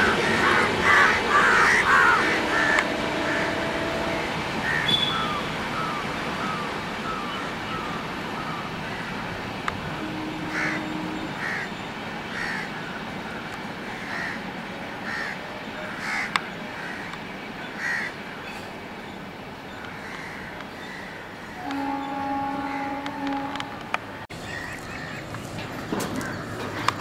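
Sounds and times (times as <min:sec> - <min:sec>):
passenger train rumble: 0:00.0 - 0:27.0
bird calls: 0:00.3 - 0:09.2.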